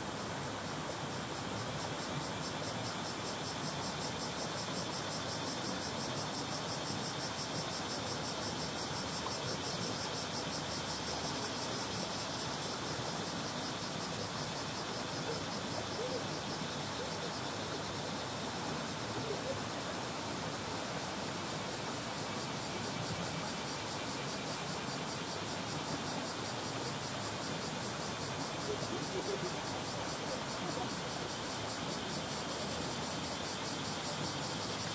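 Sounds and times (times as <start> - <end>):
cicadas buzzing: 1.5 - 20.0, 22.1 - 34.9.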